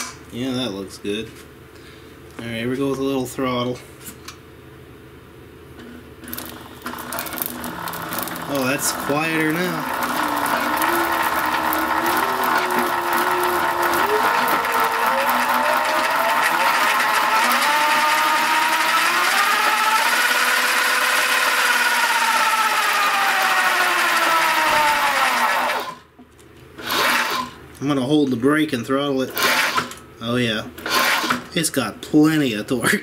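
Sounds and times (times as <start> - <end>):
drive chain running: 6.2 - 26.0, 26.8 - 27.5, 29.3 - 30.0
electric motor whining: 6.3 - 26.1, 26.8 - 27.6.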